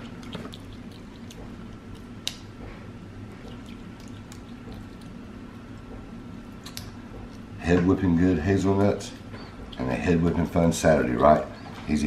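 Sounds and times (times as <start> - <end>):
monkey crunching nuts: 0.0 - 2.4, 3.3 - 5.2
low steady hum: 0.0 - 12.0.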